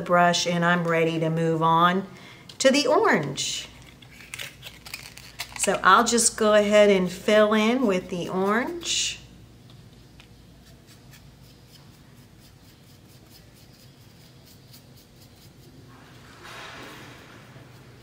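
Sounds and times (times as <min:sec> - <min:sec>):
paintbrush dabbing: 0:10.5 - 0:16.4.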